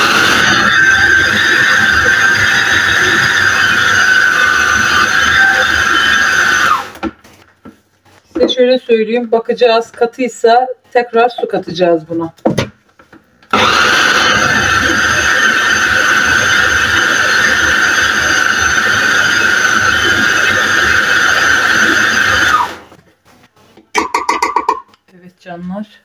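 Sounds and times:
food processor whining: 0.0 - 7.1, 13.5 - 23.0.

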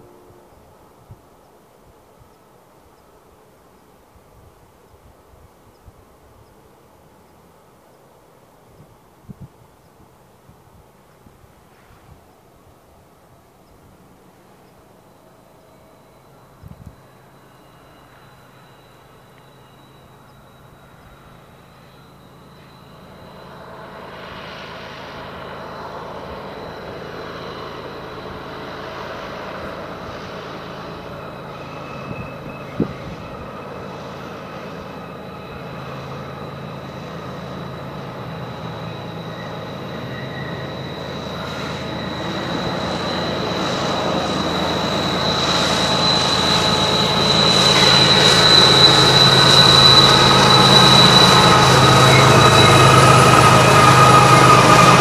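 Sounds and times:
locomotive engine rumble: 14.0 - 55.0
wheel squeal: 15.4 - 55.0.

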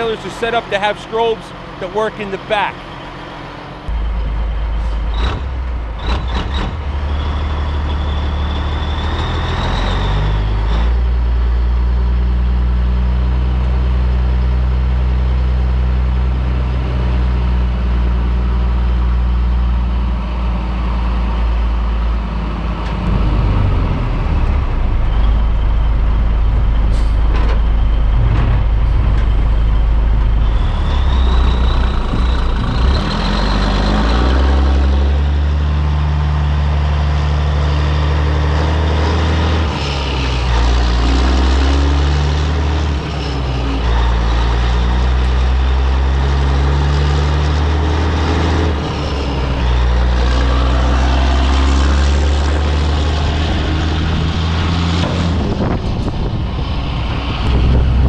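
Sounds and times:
diesel truck engine running: 0.0 - 58.0.

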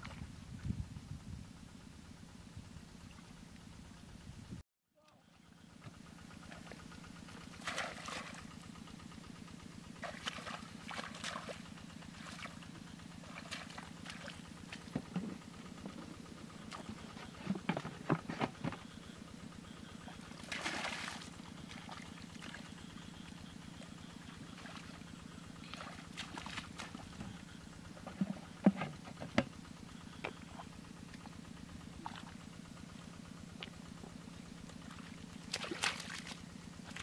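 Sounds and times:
low pulsing drone: 0.0 - 37.0
hands splashing in muddy water: 20.4 - 22.7, 25.6 - 27.1, 34.9 - 37.0.

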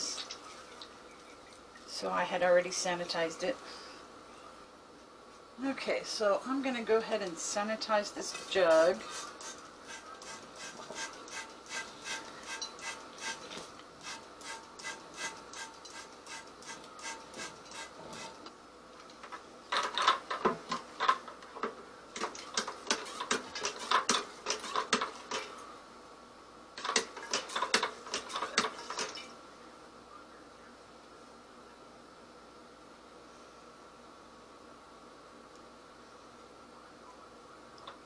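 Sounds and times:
plastic siphon clattering and sloshing: 26.8 - 29.3.

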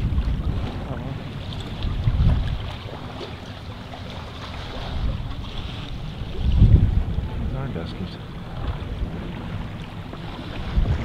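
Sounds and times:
water rushing along hulls: 0.0 - 11.0
wind buffeting microphone: 0.0 - 11.0.

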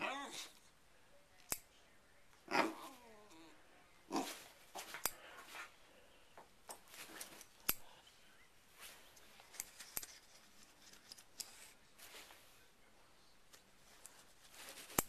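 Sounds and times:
fabric rustling: 6.8 - 7.6, 8.6 - 12.7, 13.5 - 15.0.

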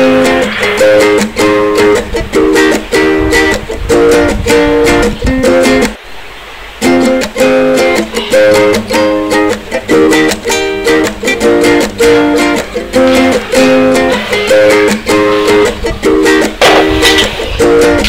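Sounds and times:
upbeat plucked-string music: 0.0 - 6.0, 6.7 - 18.0.

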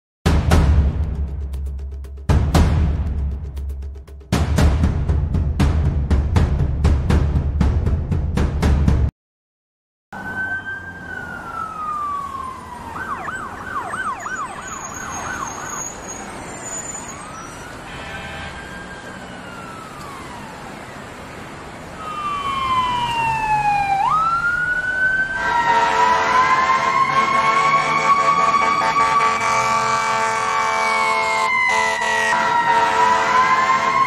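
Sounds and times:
emergency vehicle siren: 10.1 - 34.0
multi-tone horn blast: 17.9 - 18.7, 25.4 - 34.0.

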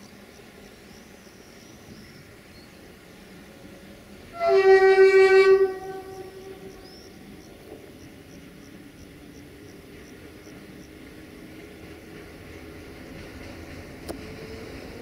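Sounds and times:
train horn blast: 4.3 - 7.2.

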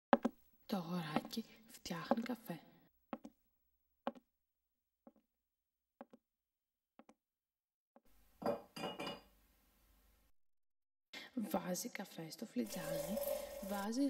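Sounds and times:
china and cutlery clinking: 12.7 - 13.9.

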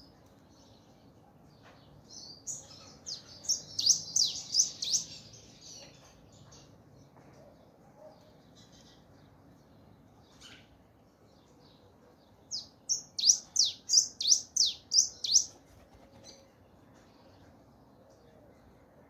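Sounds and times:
finch singing whistled notes: 2.2 - 5.3, 12.5 - 15.5.

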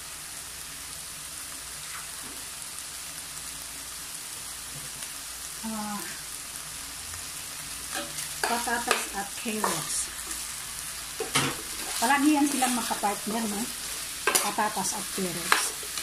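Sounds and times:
meat sizzling in a pan: 0.0 - 16.0.

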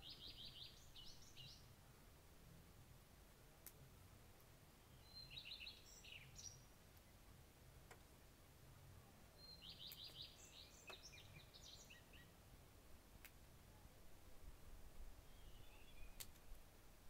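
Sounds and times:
songbird singing: 0.0 - 1.8, 4.4 - 12.5, 13.5 - 17.0
low background noise: 0.0 - 17.0.

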